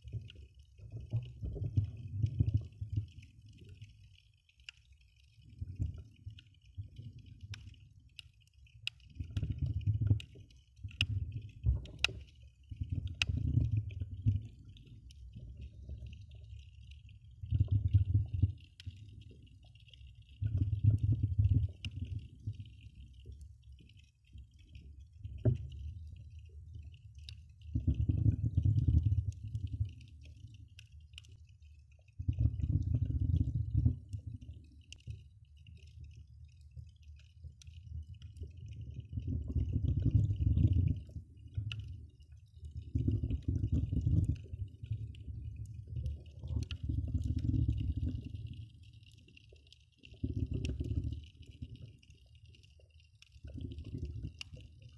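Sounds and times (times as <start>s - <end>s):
crackle of tiny clicks: 0.0s - 54.9s
underwater rumbling of water: 0.0s - 54.9s.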